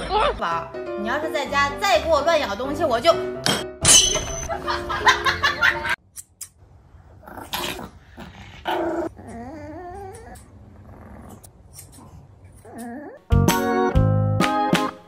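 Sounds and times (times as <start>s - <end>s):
dog growling: 7.1s - 13.2s
dog grumbling whine: 7.2s - 13.2s.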